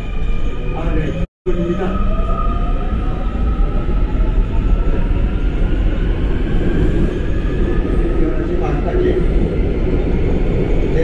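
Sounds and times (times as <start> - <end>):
wheels rumbling on rail: 2.7 - 11.0.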